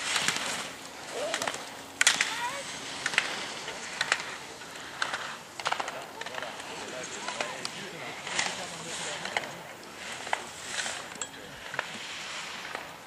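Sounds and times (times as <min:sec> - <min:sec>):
skis carving on hard snow: 0:00.0 - 0:13.0.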